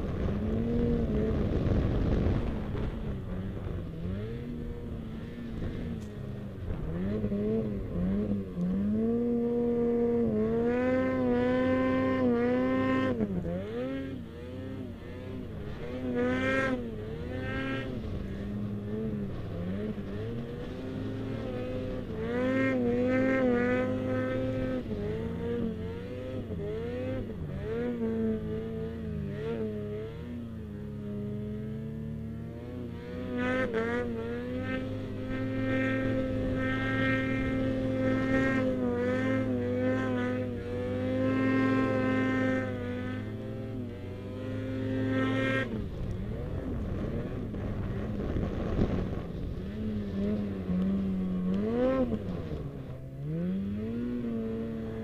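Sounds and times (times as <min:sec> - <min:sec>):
snowmobile engine revving: 0:00.0 - 0:55.0.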